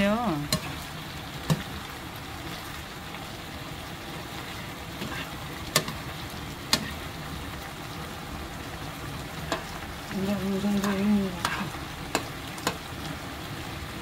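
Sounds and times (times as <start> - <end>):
vegetables sizzling in a frying pan: 0.0 - 14.0
spoon clicking against pan: 0.5 - 0.7, 5.7 - 6.0, 6.7 - 7.0, 9.5 - 9.7, 10.8 - 12.8.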